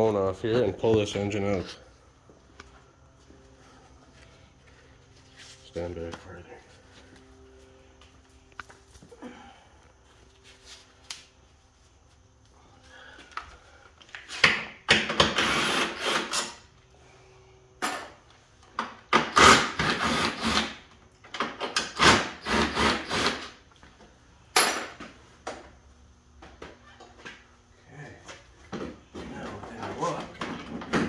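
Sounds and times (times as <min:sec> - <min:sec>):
cordless power tool whirring: 0:15.2 - 0:16.5, 0:22.0 - 0:23.6.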